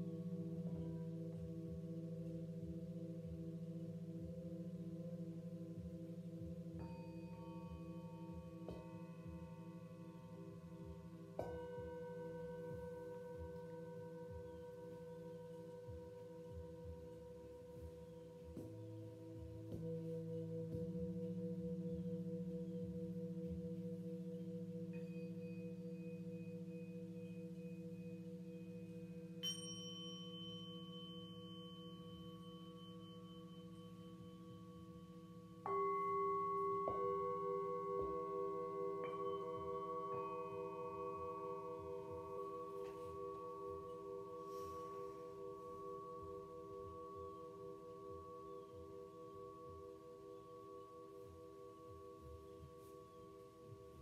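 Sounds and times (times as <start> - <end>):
singing bowls ringing: 0.0 - 54.0.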